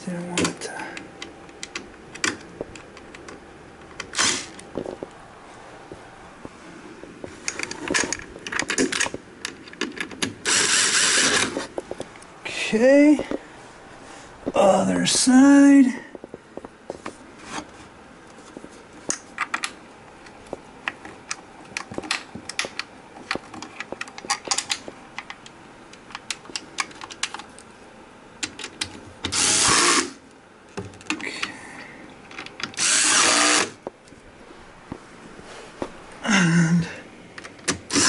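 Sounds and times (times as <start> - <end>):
cordless drill driving screws: 4.2 - 4.5, 10.4 - 11.6, 29.3 - 30.2, 32.8 - 33.8.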